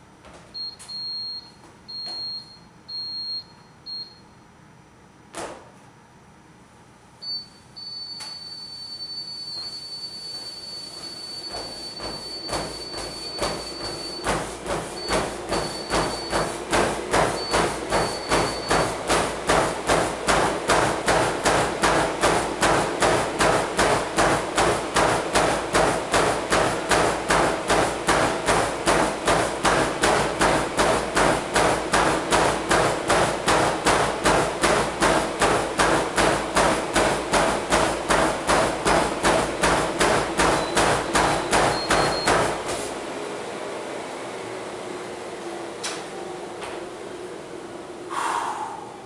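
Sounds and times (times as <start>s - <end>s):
treadmill motor hum: 8.2s - 49.0s
footfalls on treadmill belt: 10.4s - 42.9s.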